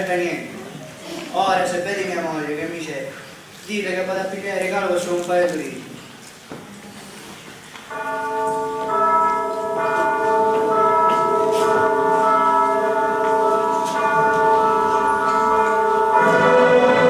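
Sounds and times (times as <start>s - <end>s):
bell-like chords over loudspeakers: 7.9s - 17.0s.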